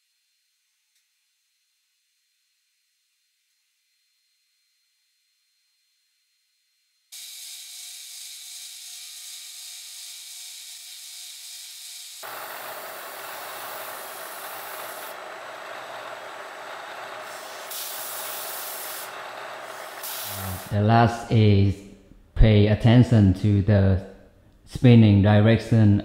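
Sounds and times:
milling machine cutting metal: 12.2 - 20.8.

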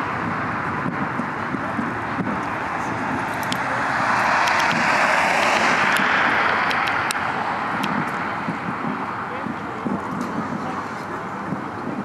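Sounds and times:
distant fireworks cracks: 0.0 - 12.0
vehicle passing: 0.0 - 12.0.

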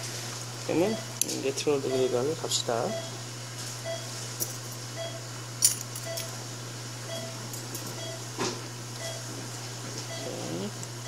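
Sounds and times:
steady low hum: 0.0 - 11.0
patient monitor beeping: 0.7 - 1.2, 1.8 - 3.2, 3.8 - 4.2, 5.0 - 5.2, 6.0 - 6.4, 7.1 - 8.3, 9.0 - 9.3, 10.0 - 10.7.

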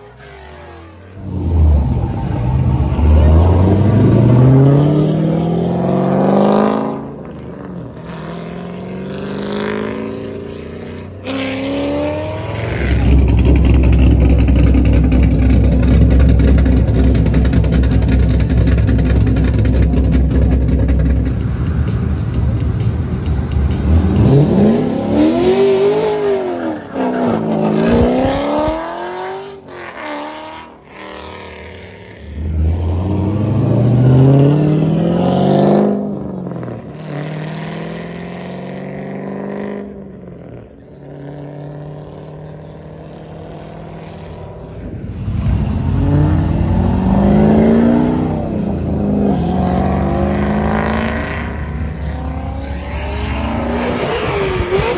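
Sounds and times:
loud car exhaust revving: 45.3 - 54.9.

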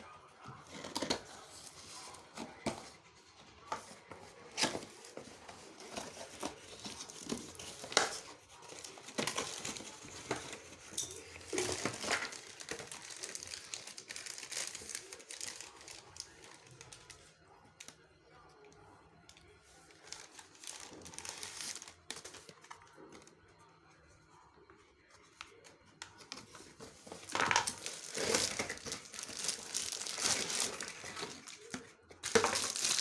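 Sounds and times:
cardboard rustling and crinkling: 0.6 - 16.6, 26.2 - 33.0.

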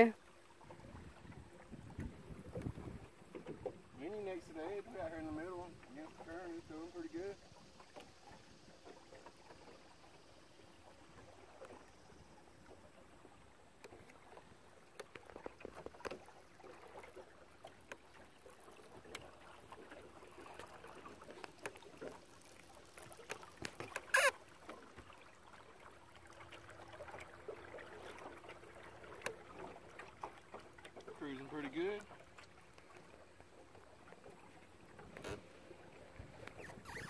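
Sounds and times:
water lapping against boat hull: 0.0 - 37.0
small splashes and clicks: 10.8 - 13.1, 13.7 - 37.0
high squeak: 24.1 - 24.4, 36.6 - 37.0.

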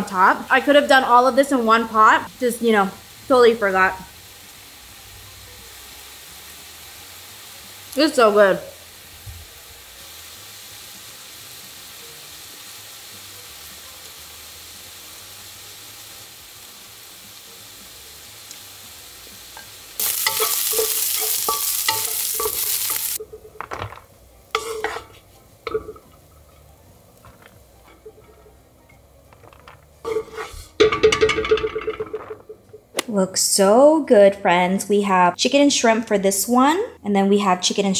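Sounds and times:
chicken sizzling in pan: 0.0 - 31.3
wooden spatula scraping pan: 20.3 - 30.8.

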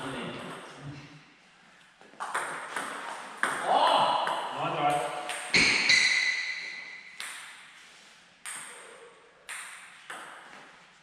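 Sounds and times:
table tennis ball bouncing: 2.1 - 7.7, 8.4 - 10.7.

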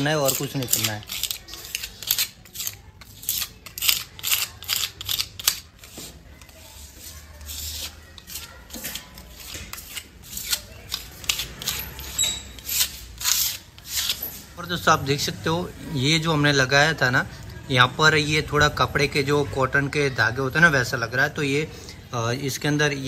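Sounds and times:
putty blade scraping wall: 0.0 - 14.6.

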